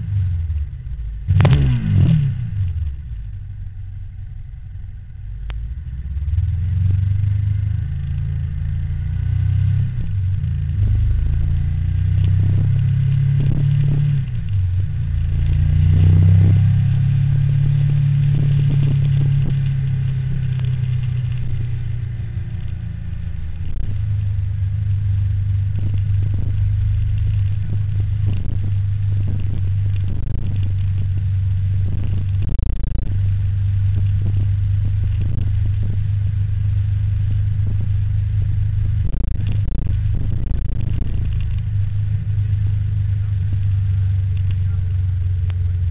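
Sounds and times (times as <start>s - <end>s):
road vehicle rumble: 0.0s - 45.9s.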